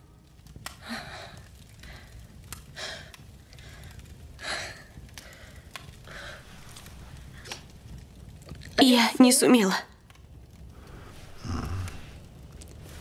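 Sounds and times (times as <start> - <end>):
faint clicks: 0.4 - 8.8.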